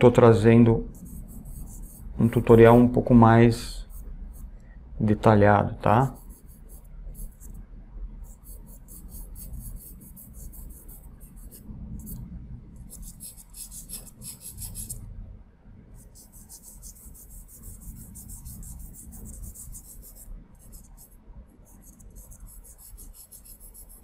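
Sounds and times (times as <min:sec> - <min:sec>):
pencil scratching on paper: 0:00.9 - 0:03.0, 0:03.8 - 0:04.5, 0:06.0 - 0:07.6, 0:08.2 - 0:12.2, 0:12.8 - 0:15.0, 0:16.0 - 0:24.0.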